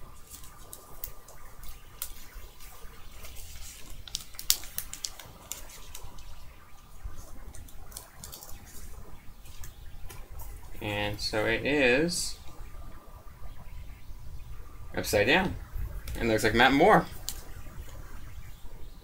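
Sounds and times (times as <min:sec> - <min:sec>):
paper wrapper crinkling and tearing: 0:00.0 - 0:06.3, 0:07.4 - 0:08.8.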